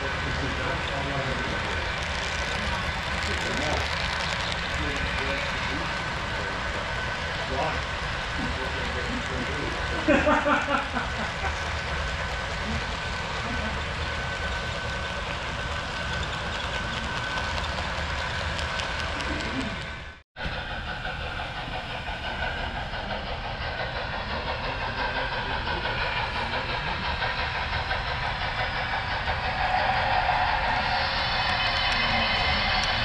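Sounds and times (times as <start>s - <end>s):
model train rumbling: 0.0s - 33.0s
model train wheels ticking on rails: 0.0s - 33.0s
thin steady whine: 30.2s - 33.0s.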